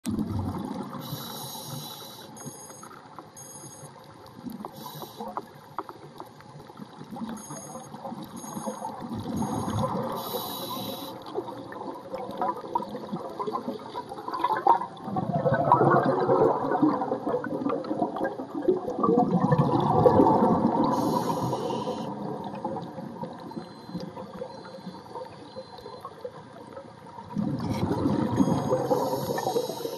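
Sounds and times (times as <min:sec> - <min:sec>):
water rushing and gurgling underwater: 0:00.0 - 0:29.9
short high-pitched beeps: 0:01.0 - 0:04.0, 0:07.2 - 0:11.2, 0:20.9 - 0:22.1, 0:23.4 - 0:26.3, 0:27.6 - 0:29.9.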